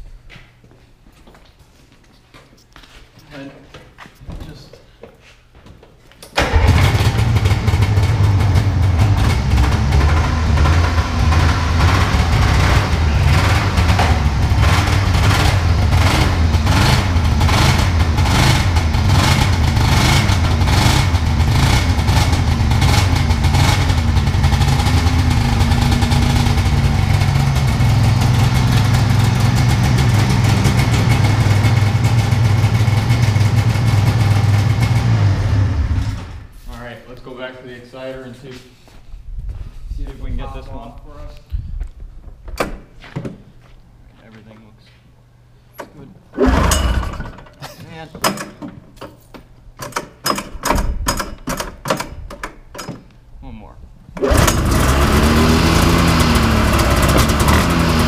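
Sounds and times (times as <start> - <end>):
pull cord start: 6.3 - 7.5, 45.8 - 47.6, 54.2 - 58.0
two-stroke engine running: 6.4 - 36.2, 46.4 - 47.4, 54.2 - 58.0.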